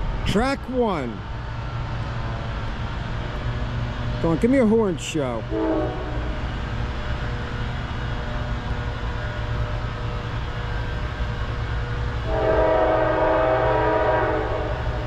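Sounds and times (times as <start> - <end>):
locomotive air horn: 5.5 - 6.4, 12.2 - 14.9.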